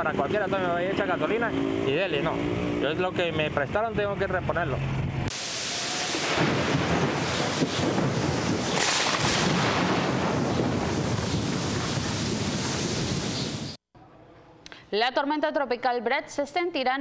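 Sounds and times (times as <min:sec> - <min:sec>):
heavy rain hissing: 0:05.3 - 0:13.8
rumbling thunder: 0:06.1 - 0:13.8.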